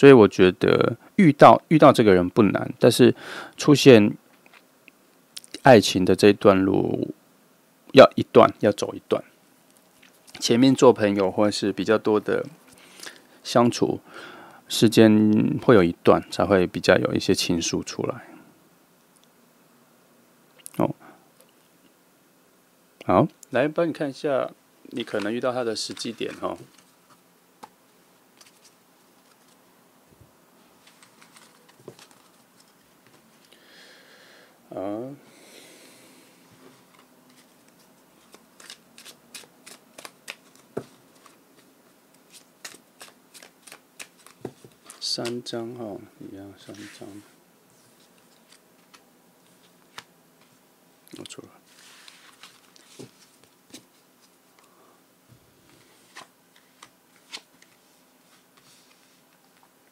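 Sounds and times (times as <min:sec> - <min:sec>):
soft rustle: 0:24.9 - 0:33.5, 0:36.4 - 0:45.6, 0:46.4 - 0:50.6, 0:51.2 - 0:59.8
cards tapping and clicking: 0:38.6 - 0:41.4, 0:42.6 - 0:45.4.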